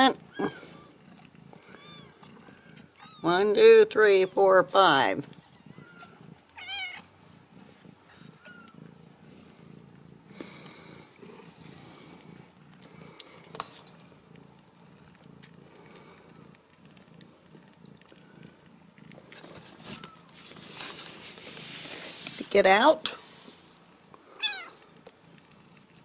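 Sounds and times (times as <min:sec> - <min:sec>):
cat purring: 0:00.0 - 0:26.0
kittens squeaking: 0:01.6 - 0:03.3, 0:05.3 - 0:07.1, 0:08.2 - 0:08.8.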